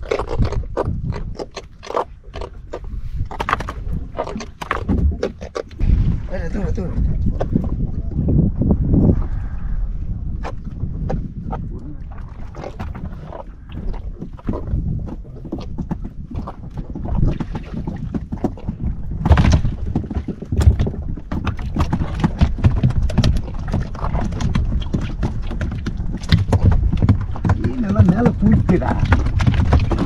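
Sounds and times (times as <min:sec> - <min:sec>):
wind rumbling on microphone: 0:00.0 - 0:30.0
knocks and taps on boat: 0:14.2 - 0:30.0.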